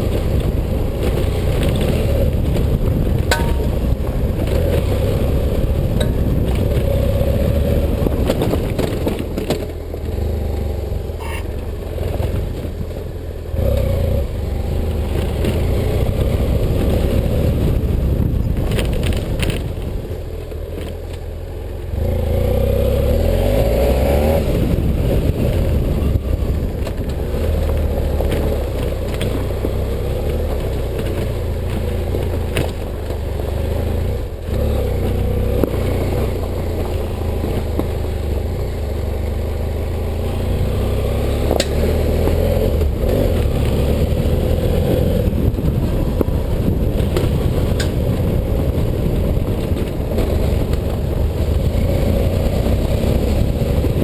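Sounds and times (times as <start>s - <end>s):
motorcycle engine: 0.0s - 54.0s
wheels knocking over stones: 0.3s - 4.9s, 7.9s - 10.0s, 18.4s - 19.9s, 26.5s - 33.5s.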